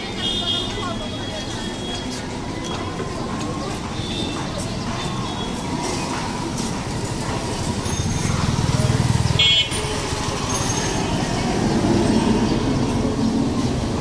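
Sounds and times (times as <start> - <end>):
car horn toot: 9.4 - 9.9.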